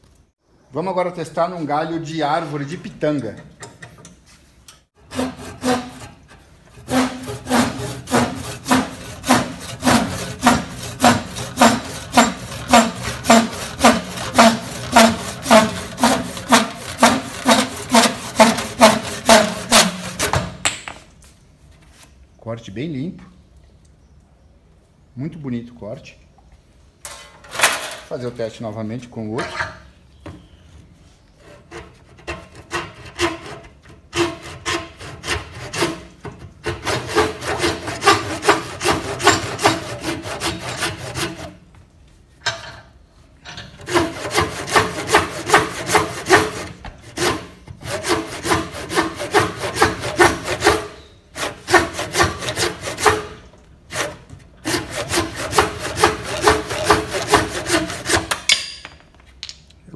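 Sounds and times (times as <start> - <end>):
handsaw cutting through branch: 5.0 - 20.4, 36.6 - 41.5, 43.9 - 58.4.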